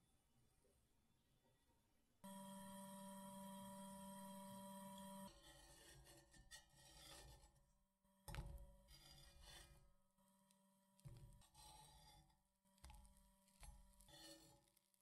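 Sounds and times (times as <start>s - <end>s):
metal turner scraping frying pan: 5.4s - 7.6s, 8.9s - 9.8s, 11.6s - 12.3s, 14.0s - 14.8s.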